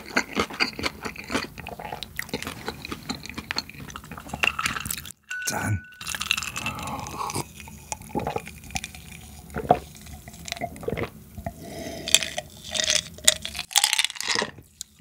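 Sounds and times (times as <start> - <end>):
person gulping a drink: 5.6 - 14.7.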